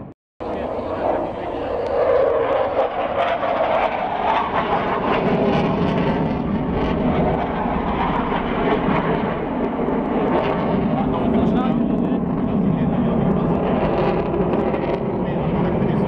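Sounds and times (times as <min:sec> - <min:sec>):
jet roar overhead: 0:00.0 - 0:16.0.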